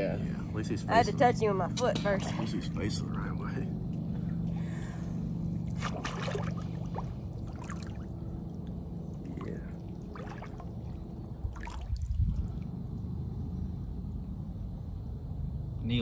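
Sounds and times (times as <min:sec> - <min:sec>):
low steady hum: 0:00.0 - 0:16.0
water trickling and splashing: 0:05.6 - 0:14.4.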